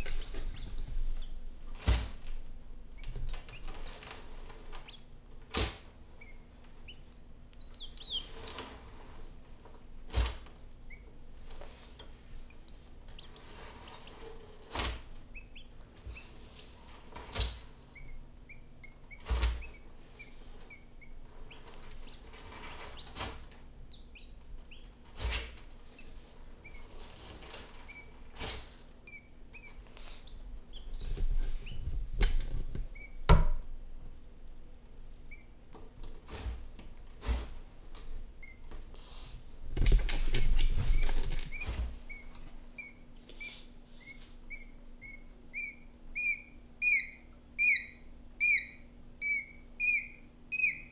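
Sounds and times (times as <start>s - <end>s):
chicks peeping: 0.0s - 2.3s, 2.9s - 9.2s, 10.8s - 27.0s, 27.6s - 28.3s, 28.9s - 33.2s, 40.4s - 50.9s.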